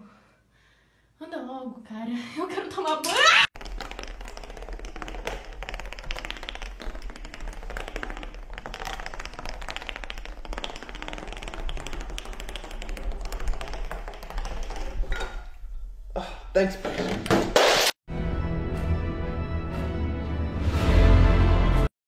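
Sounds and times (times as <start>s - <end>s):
rapid irregular tapping: 3.6s - 15.1s.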